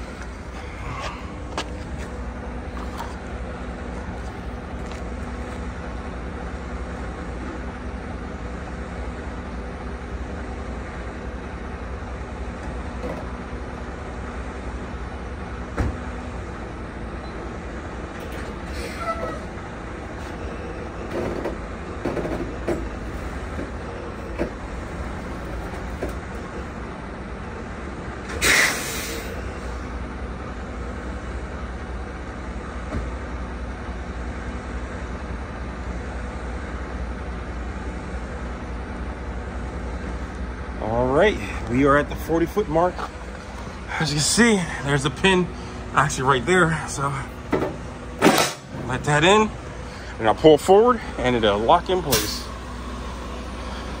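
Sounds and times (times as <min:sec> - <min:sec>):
diesel truck engine idling: 0:00.0 - 0:54.0
air brake hissing: 0:18.6 - 0:19.5, 0:28.3 - 0:29.9, 0:52.0 - 0:54.0.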